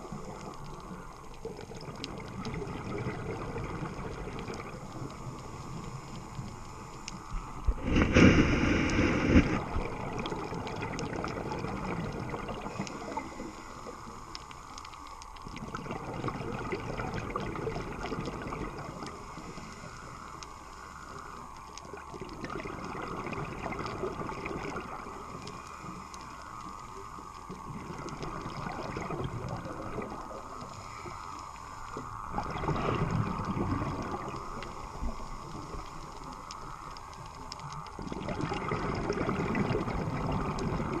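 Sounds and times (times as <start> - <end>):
exhaled bubbles gurgling: 0.0 - 41.0
scuba diver breathing underwater: 2.5 - 14.9, 15.8 - 21.6, 22.5 - 37.1.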